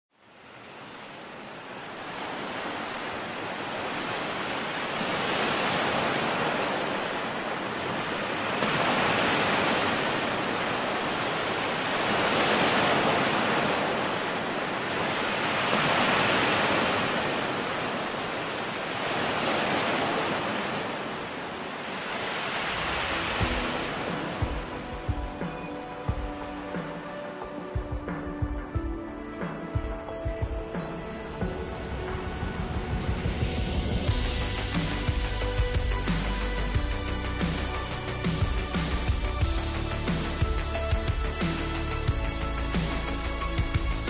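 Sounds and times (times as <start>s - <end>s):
ocean waves washing in: 0.2s - 27.8s.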